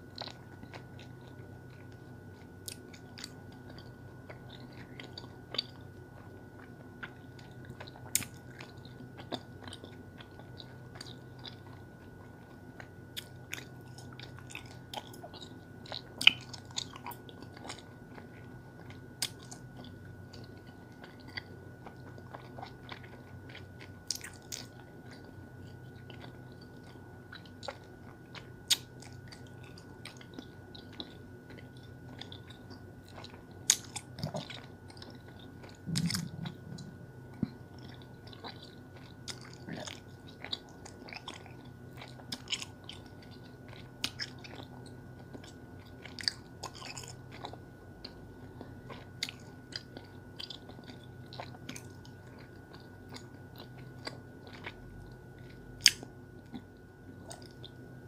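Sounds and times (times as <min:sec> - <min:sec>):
faint steady hum: 0:00.0 - 0:58.0
gum chewing smacks: 0:12.8 - 0:48.2, 0:48.9 - 0:57.8.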